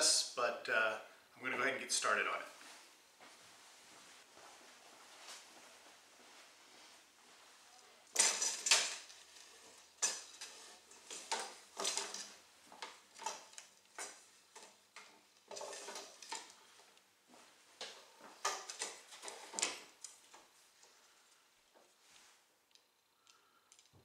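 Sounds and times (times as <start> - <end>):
wooden struts knocking and rattling: 8.1 - 16.8, 17.8 - 21.0.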